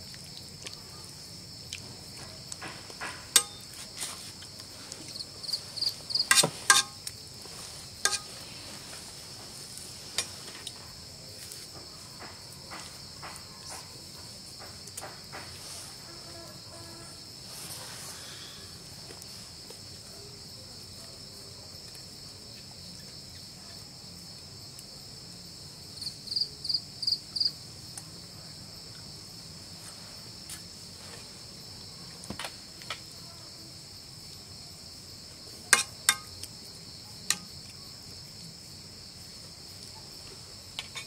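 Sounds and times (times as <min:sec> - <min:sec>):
crickets chirping: 0:00.0 - 0:41.0
metal spatula striking a pan: 0:03.3 - 0:03.7, 0:06.3 - 0:07.0, 0:08.0 - 0:08.3, 0:35.8 - 0:36.4.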